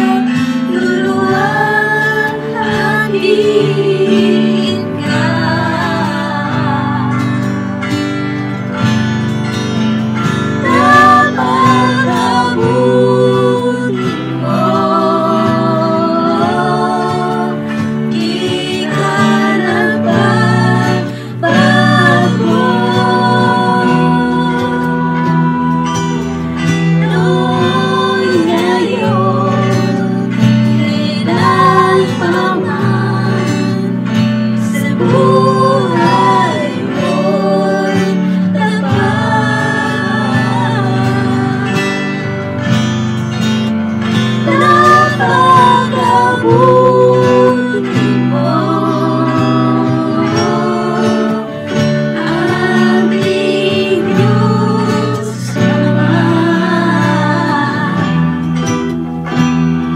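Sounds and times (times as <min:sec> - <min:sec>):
woman singing worship song: 0:00.0 - 0:08.0, 0:10.6 - 0:42.4, 0:44.1 - 0:59.3
acoustic guitar: 0:00.0 - 0:59.9
group of singers: 0:00.0 - 0:59.9
keyboard: 0:00.0 - 0:59.9.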